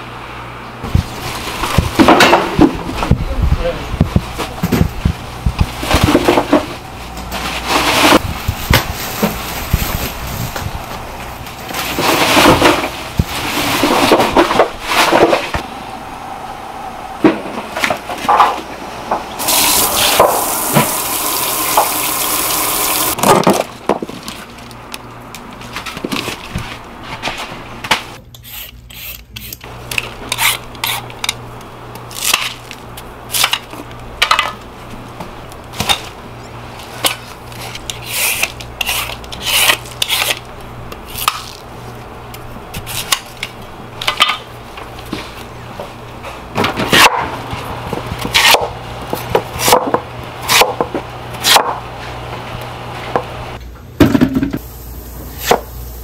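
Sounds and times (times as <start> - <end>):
water running from a tap: 19.4 - 23.2.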